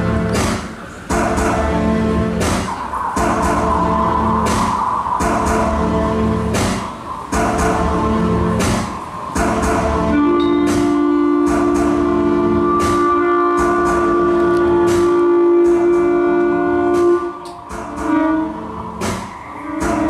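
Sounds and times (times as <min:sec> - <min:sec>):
plucked or struck notes: 0:00.0 - 0:20.0
long held instrumental note: 0:09.4 - 0:20.0.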